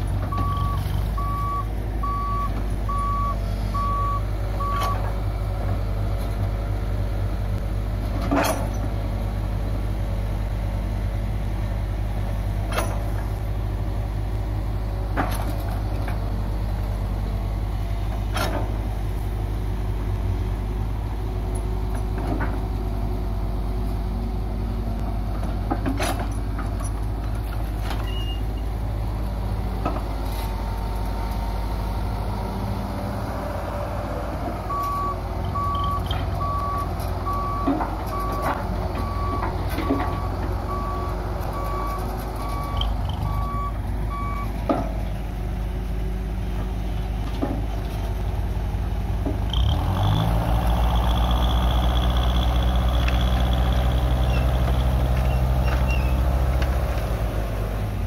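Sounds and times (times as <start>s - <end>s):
diesel engine running: 0.0s - 58.0s
reversing alarm beeping: 0.3s - 5.1s, 34.7s - 44.5s.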